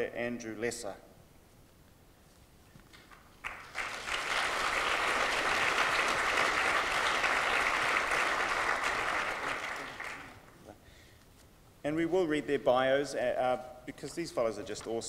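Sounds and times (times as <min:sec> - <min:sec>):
audience applauding: 0:03.1 - 0:10.6.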